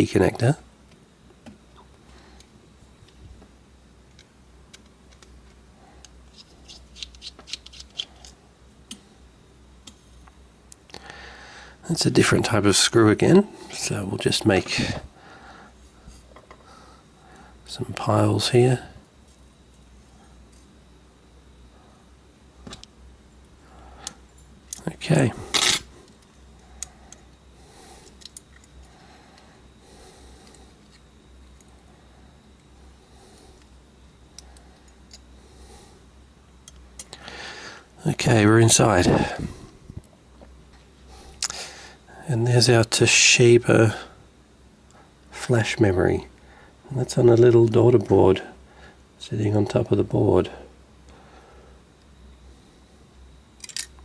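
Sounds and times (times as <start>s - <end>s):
low steady hum: 0.0s - 54.0s
clicks of small parts handled: 4.1s - 9.0s, 28.0s - 28.9s, 53.6s - 54.0s
screwdriver clicking and scraping: 6.3s - 8.4s.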